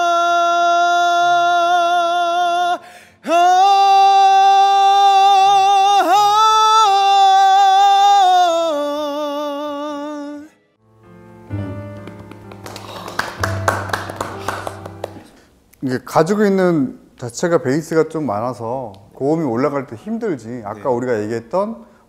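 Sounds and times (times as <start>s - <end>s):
man singing unaccompanied: 0.0s - 10.6s.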